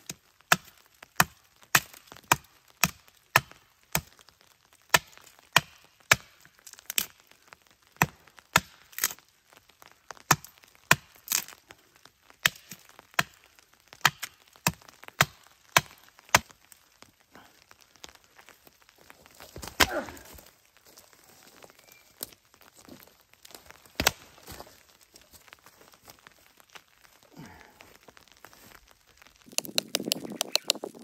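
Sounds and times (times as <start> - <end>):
blade chopping wood: 24.0 - 24.2.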